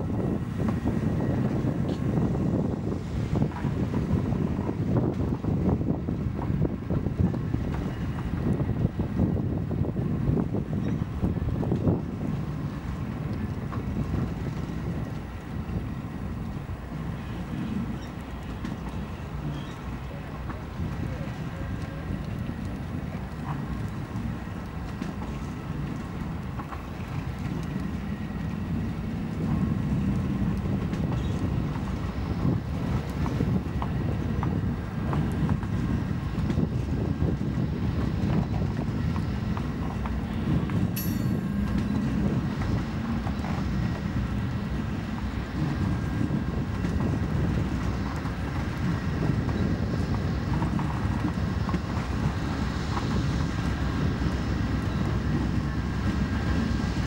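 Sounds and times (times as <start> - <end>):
diesel locomotive engines: 0.0 - 57.0
train wheels clicking on rail: 17.8 - 57.0
sharp metallic clank: 41.0 - 42.1.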